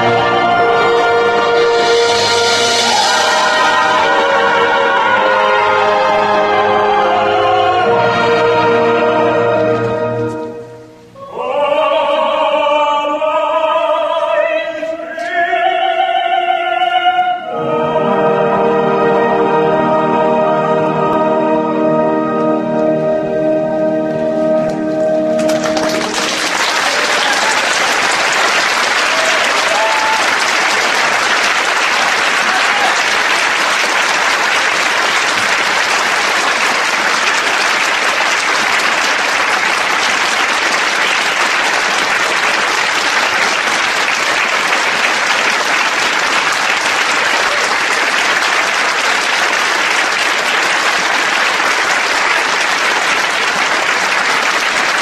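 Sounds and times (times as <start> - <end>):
audience applauding: 0.0 - 6.7, 25.3 - 55.0
orchestra chord: 0.0 - 11.2, 17.4 - 26.8.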